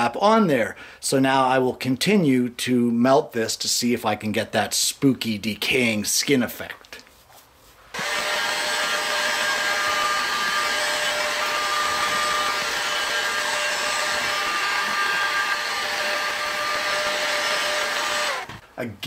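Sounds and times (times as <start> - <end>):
heat gun blowing air: 8.0 - 18.6.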